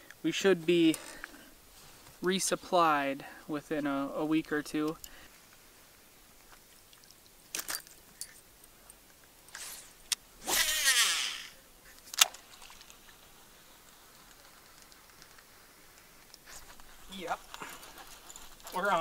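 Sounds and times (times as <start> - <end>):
rod swish: 9.6 - 11.4
reel spool whirring: 10.4 - 11.6.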